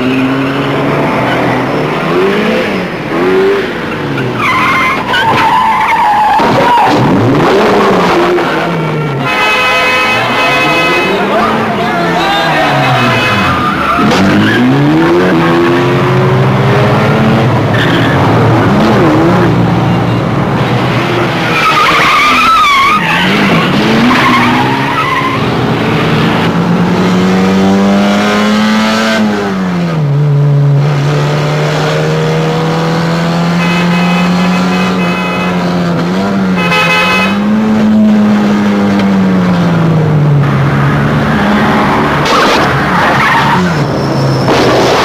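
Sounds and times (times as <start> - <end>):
tires squealing: 0.0 - 16.5, 17.4 - 19.8, 20.6 - 26.2, 41.3 - 45.0
car engines revving: 0.0 - 45.0.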